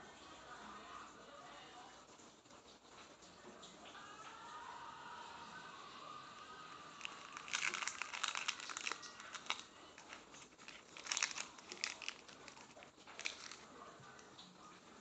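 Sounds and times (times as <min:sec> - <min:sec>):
husk crackling and tearing: 0:07.0 - 0:14.5.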